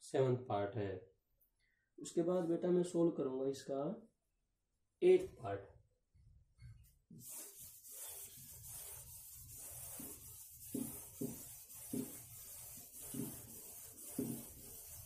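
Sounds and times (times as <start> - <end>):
duster rubbing on chalkboard: 7.2 - 15.0.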